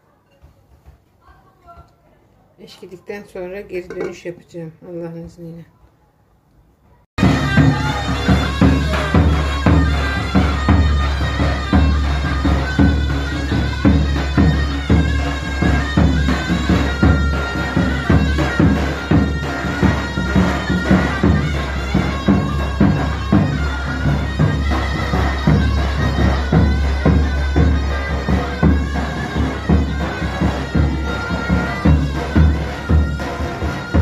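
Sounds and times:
drum beating: 7.2 - 34.0
reedy wind instrument melody: 7.2 - 34.0.

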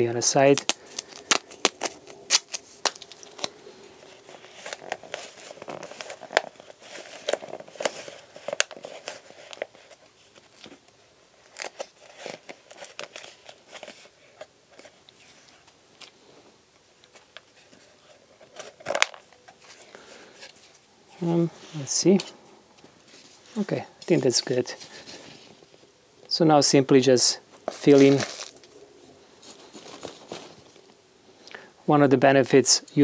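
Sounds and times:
plastic cup crinkling: 0.5 - 15.0, 18.4 - 20.8, 27.6 - 28.8
adhesive tape tearing: 0.6 - 3.5.

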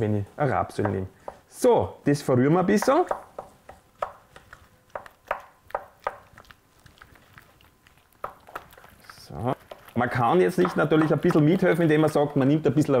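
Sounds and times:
spoon stirring dough in bowl: 2.6 - 13.0.

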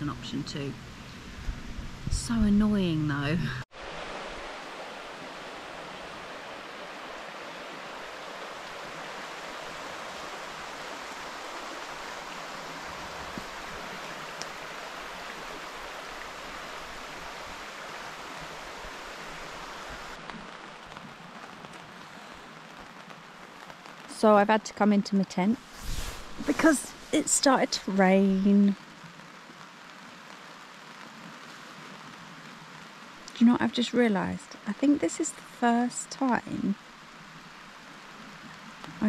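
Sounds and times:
river rushing over stones: 3.7 - 24.1, 25.6 - 28.3
rain pattering on a tent: 3.7 - 39.0.

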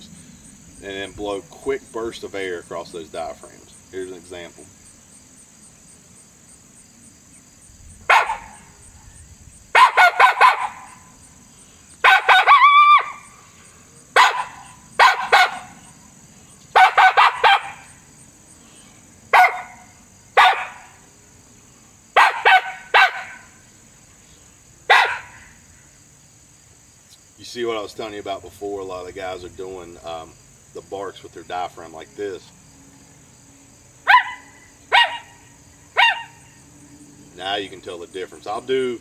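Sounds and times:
coyote barks on a game call: 8.1 - 8.7, 9.7 - 11.1, 12.0 - 13.3, 14.1 - 15.9, 16.7 - 18.0, 19.3 - 21.0, 22.2 - 23.6, 24.9 - 25.6, 34.0 - 36.6.

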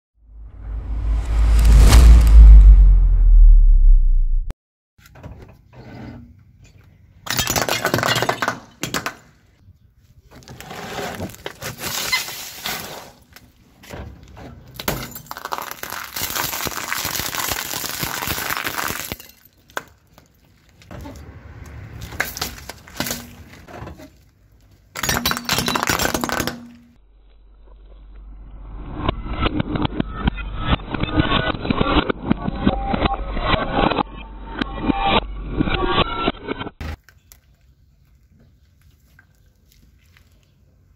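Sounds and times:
objects crushed under car tyre: 10.4 - 21.0, 21.9 - 27.0
plastic pipe crackling: 15.3 - 20.9.

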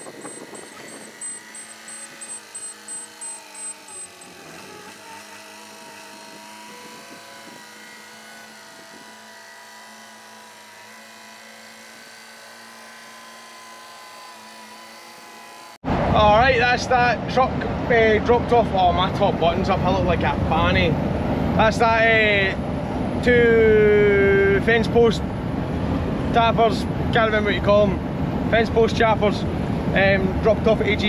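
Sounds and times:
rapid high beeping: 0.0 - 5.4
diesel engine running: 0.0 - 31.0.

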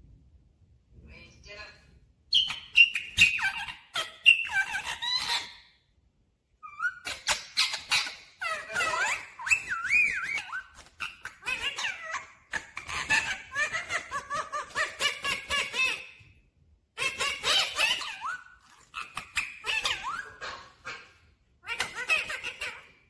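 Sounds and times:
parakeet chattering: 2.3 - 5.6, 6.6 - 16.2, 17.0 - 23.0.

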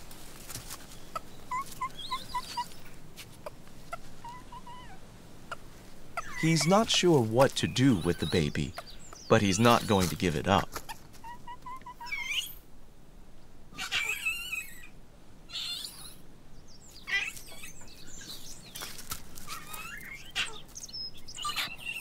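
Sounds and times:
faint rustles: 0.0 - 8.1, 16.8 - 21.0
high-pitched animal chirps and squeaks: 1.5 - 2.8, 6.2 - 7.0, 11.2 - 12.6, 13.8 - 14.9, 15.5 - 16.2, 17.1 - 17.8, 19.5 - 20.6, 21.3 - 22.0.

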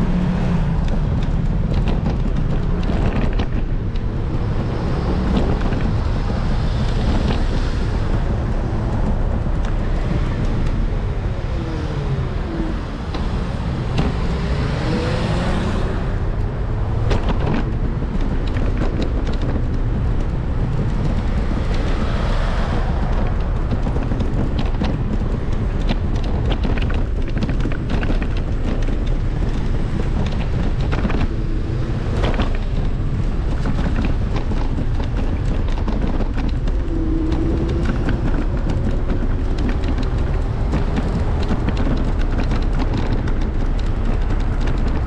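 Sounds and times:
rumble of cars and tyres: 0.0 - 45.0.

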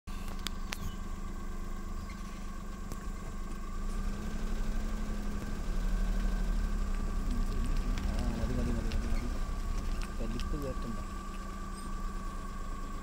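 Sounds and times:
vehicle engine humming: 0.1 - 13.0.

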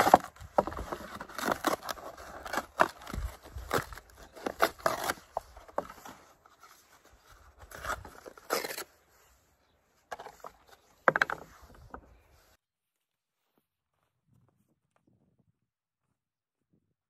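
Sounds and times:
paper carton tearing and crumpling: 0.0 - 9.0.

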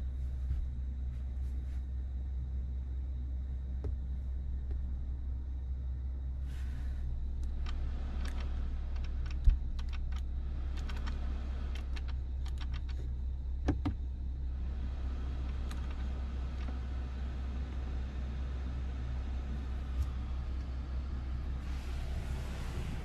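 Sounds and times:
steady low hum: 0.0 - 23.0
dials clicking: 7.4 - 14.0.

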